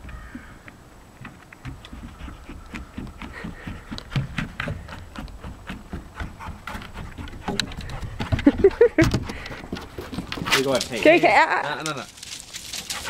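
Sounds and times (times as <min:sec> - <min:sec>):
dog claws clicking on wood floor: 0:09.1 - 0:13.0.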